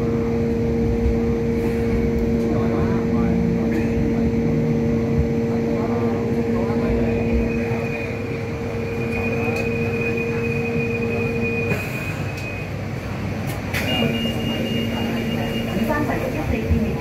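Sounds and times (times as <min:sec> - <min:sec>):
rail car rumble: 0:00.0 - 0:17.0
click: 0:12.4 - 0:12.6.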